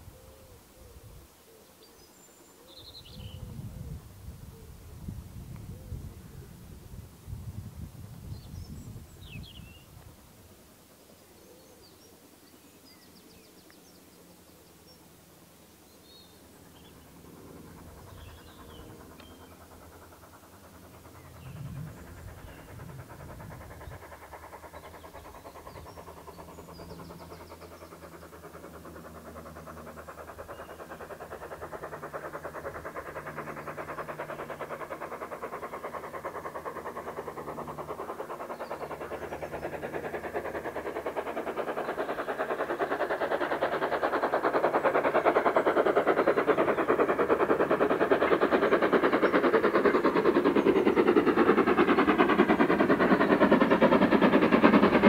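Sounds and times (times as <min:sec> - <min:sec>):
steam locomotive exhaust beats: 0:16.4 - 0:55.0.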